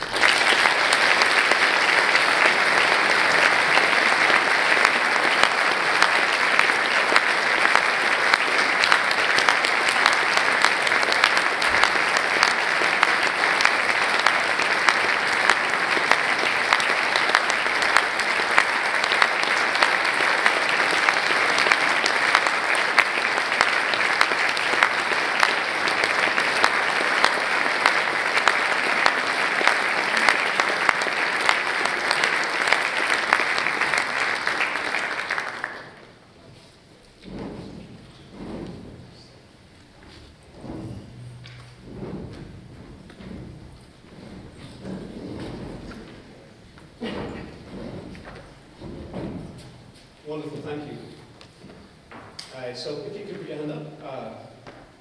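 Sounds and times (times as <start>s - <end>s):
audience applauding: 0.0s - 36.4s.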